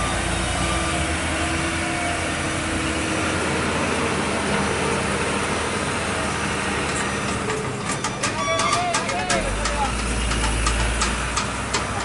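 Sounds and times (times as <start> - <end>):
diesel engine humming: 0.0 - 12.0.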